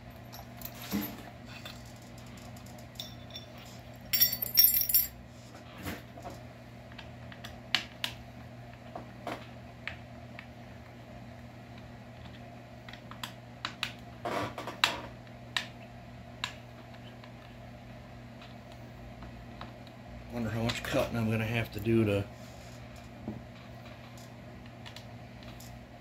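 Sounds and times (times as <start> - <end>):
steady low hum: 0.0 - 5.6.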